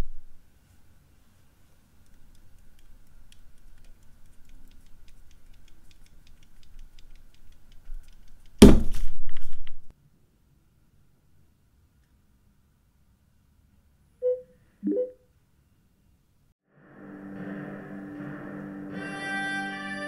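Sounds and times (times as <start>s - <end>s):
fingertip clicking on plastic: 2.0s - 8.6s.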